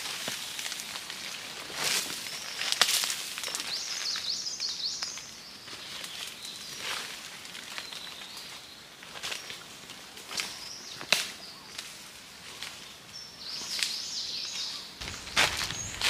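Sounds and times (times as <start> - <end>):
footsteps crunching through dry leaves: 0.0 - 11.1, 11.8 - 16.0
bird calling high rising notes: 15.0 - 16.0.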